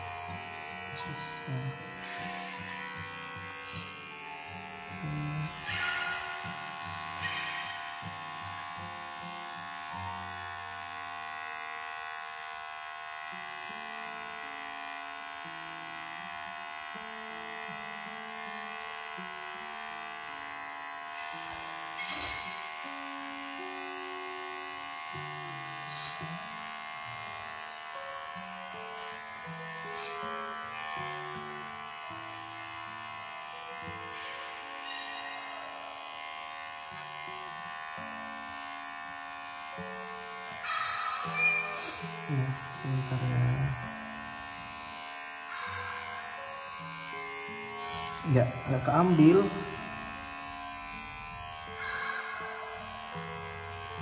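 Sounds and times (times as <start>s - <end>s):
electric clipper buzzing: 0.0s - 54.0s.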